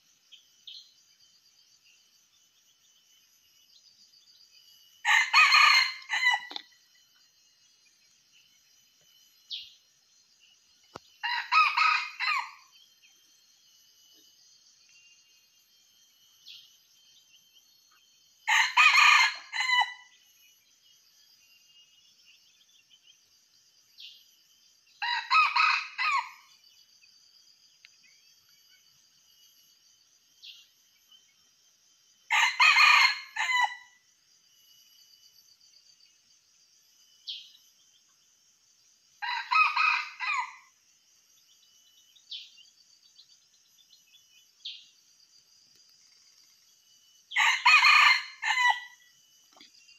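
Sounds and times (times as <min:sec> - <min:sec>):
high buzz of insects: 0:00.0 - 0:49.9
rooster crowing: 0:05.0 - 0:06.6, 0:11.2 - 0:12.7, 0:18.5 - 0:20.1, 0:25.0 - 0:26.4, 0:32.3 - 0:33.9, 0:39.2 - 0:40.7, 0:47.3 - 0:49.0.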